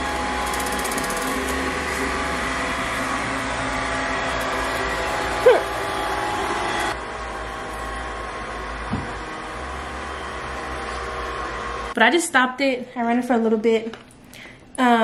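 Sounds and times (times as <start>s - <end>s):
robot vacuum motor whine: 0.0s - 12.0s.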